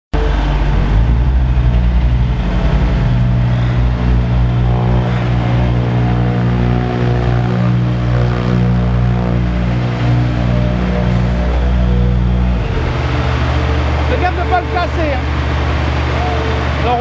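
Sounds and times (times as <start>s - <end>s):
diesel engines humming: 0.1s - 17.0s.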